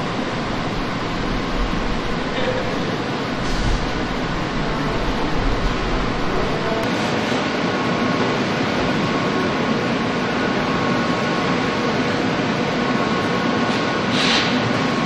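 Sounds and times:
assembly line machinery din: 0:00.0 - 0:11.8
short hiss: 0:14.1 - 0:14.6.

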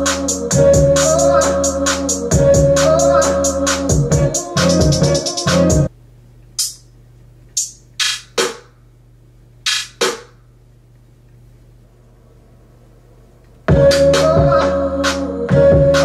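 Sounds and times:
beat through studio monitors: 0:00.0 - 0:05.9, 0:06.5 - 0:09.0, 0:09.6 - 0:10.6, 0:13.6 - 0:16.0
faint steady hum: 0:05.8 - 0:09.7, 0:10.3 - 0:16.0.

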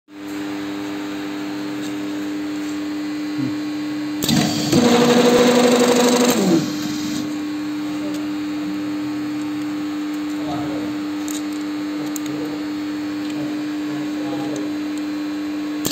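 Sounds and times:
riveting head whirring: 0:04.2 - 0:07.3
riveting machine humming: 0:04.2 - 0:15.1.

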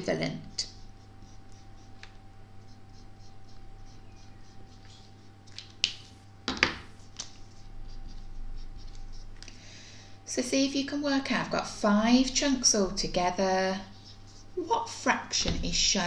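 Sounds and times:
marker scratching on whiteboard: 0:00.5 - 0:06.2, 0:06.8 - 0:09.4, 0:13.4 - 0:15.0.

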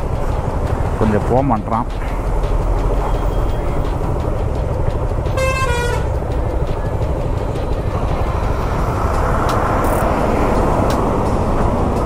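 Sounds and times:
road traffic noise: 0:00.0 - 0:12.0
vehicle horn blast: 0:05.4 - 0:06.1.

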